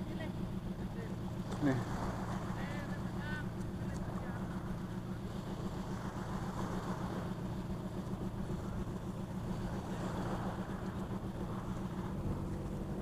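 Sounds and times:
engine droning steadily: 0.0 - 13.0.

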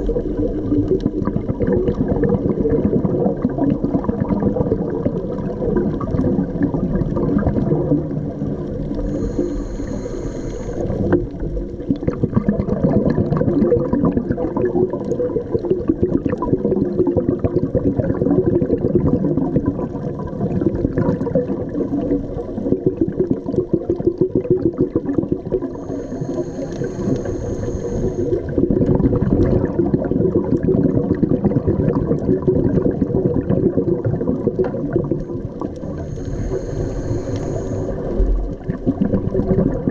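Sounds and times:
gurgling exhaust bubbles underwater: 0.0 - 39.9.

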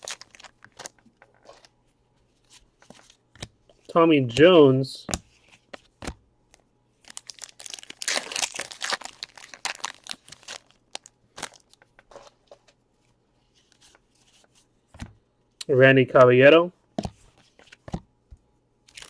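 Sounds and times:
plastic wrapper crinkling: 0.0 - 1.7, 7.0 - 12.3.

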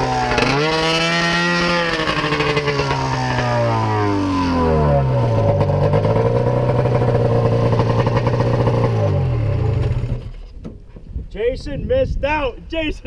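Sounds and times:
two-stroke engine revving: 0.0 - 10.4.

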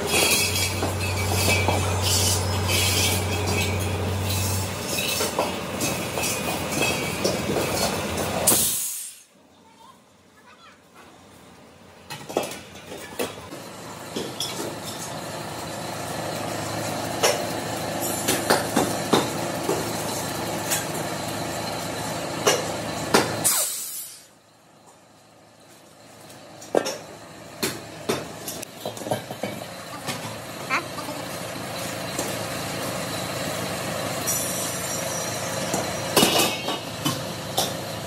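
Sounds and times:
steel cylinders clanking: 0.0 - 9.2, 28.1 - 37.9
sharp blast of air: 8.5 - 9.3, 23.4 - 24.3.

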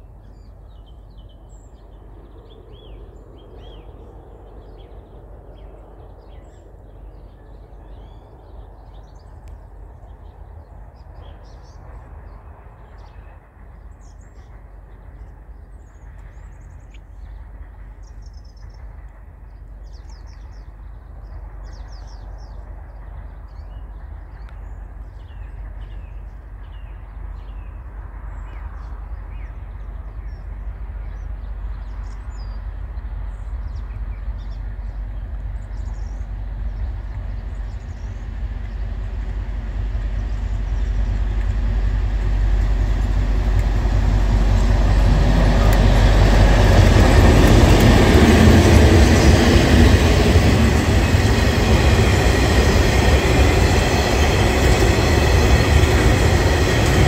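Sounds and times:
diesel locomotive engine rumble: 0.0 - 57.0
small birds chirping: 33.3 - 57.0.

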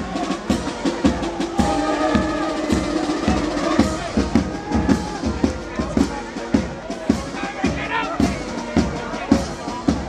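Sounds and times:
steady drumbeat: 0.0 - 10.0
held melody notes: 0.4 - 6.6.

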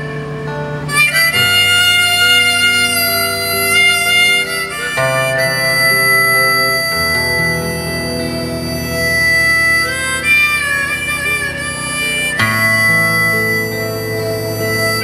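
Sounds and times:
harmonica: 0.0 - 15.0
strummed electric guitar: 0.0 - 15.0.

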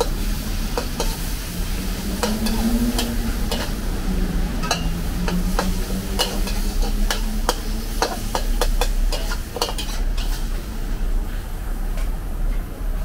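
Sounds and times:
metal spatula clanking in a wok: 0.0 - 1.4, 2.2 - 3.8, 4.6 - 10.6
food sizzling: 0.0 - 11.1.

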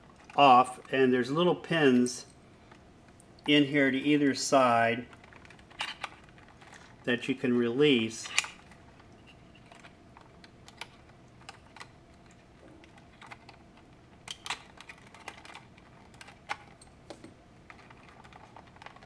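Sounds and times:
plastic case shifting in hands: 12.6 - 19.0.

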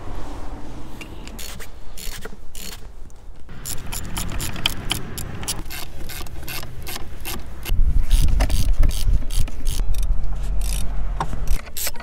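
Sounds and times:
hand ratchet clicking: 1.3 - 2.8, 3.5 - 10.8.

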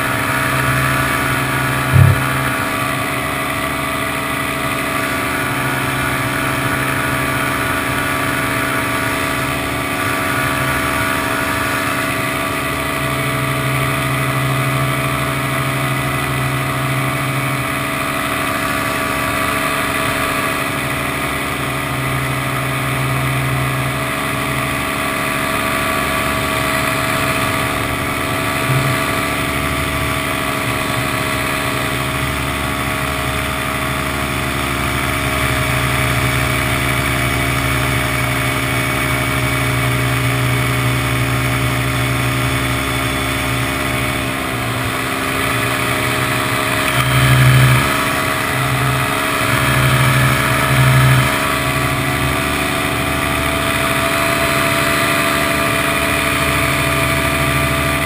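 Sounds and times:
paramotor engine and propeller: 0.0 - 58.0.

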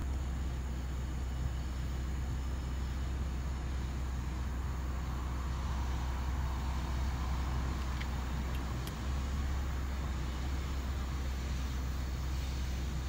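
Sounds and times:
diesel locomotive rumble: 0.0 - 13.0
faint high clicks: 7.7 - 9.1.

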